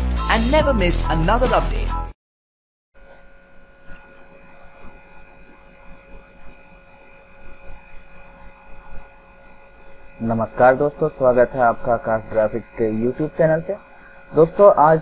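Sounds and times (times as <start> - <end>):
faint electrical whine: 3.0 - 15.0.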